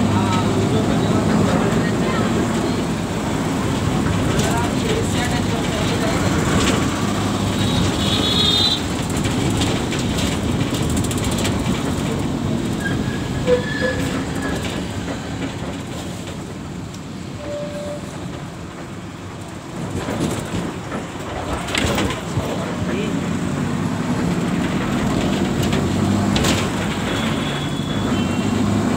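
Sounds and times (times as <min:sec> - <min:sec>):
road vehicle rumble: 0:00.0 - 0:28.9
street traffic noise: 0:00.0 - 0:28.9
brief horn tones: 0:17.4 - 0:18.1.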